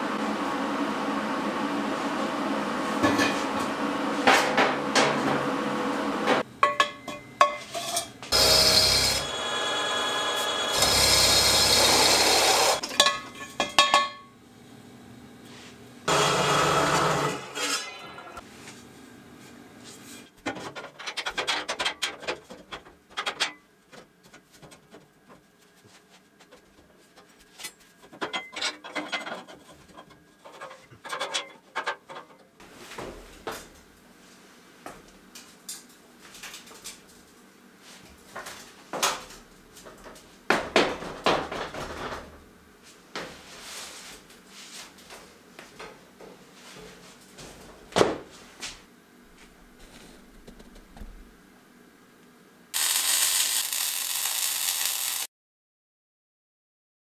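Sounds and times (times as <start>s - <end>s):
metallic clanks and taps: 6.6s - 8.0s
chop saw cutting steel: 8.3s - 12.8s, 16.1s - 18.2s, 52.8s - 55.3s.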